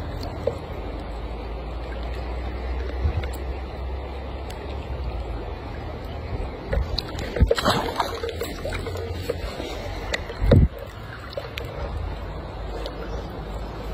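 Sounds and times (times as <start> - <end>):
river water: 0.0 - 13.9
wind rumbling on microphone: 0.0 - 13.9
fish splashing into water: 6.6 - 11.9.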